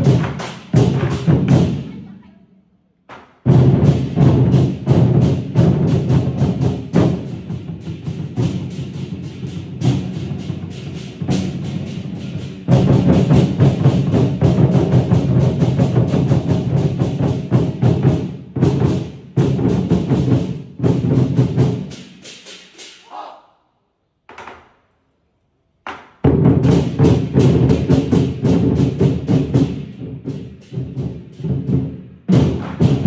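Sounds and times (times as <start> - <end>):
barrel drums beaten fast: 0.0 - 2.0, 3.1 - 23.0, 25.9 - 33.0.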